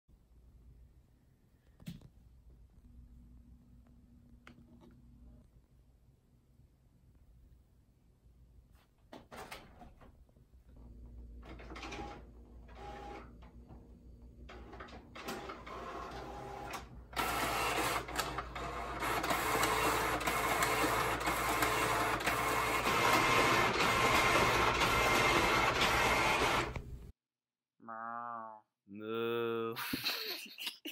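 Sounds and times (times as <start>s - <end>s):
inkjet printer whirring and clicking: 11.4s - 13.4s, 14.5s - 26.8s.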